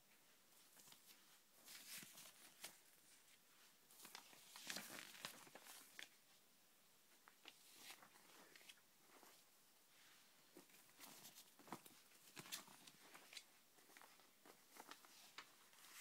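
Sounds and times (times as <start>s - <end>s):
glossy paper rustling: 0.6s - 6.2s.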